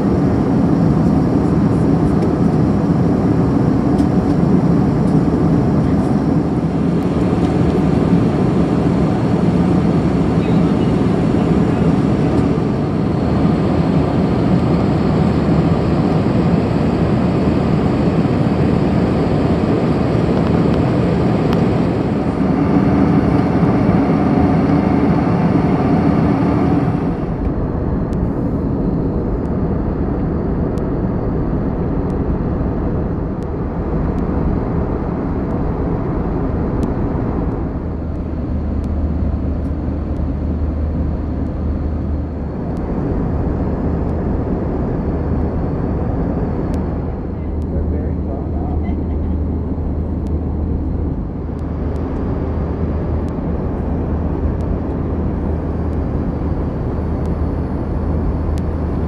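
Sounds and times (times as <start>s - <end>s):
airliner cabin roar: 0.0s - 59.0s
deep hum: 16.6s - 59.0s.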